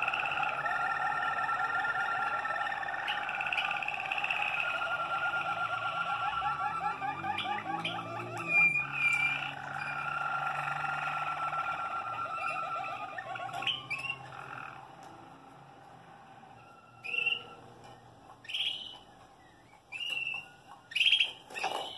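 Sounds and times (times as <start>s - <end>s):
canary whistled notes: 0.0s - 14.8s, 16.6s - 17.7s
canaries trilling: 0.0s - 21.9s.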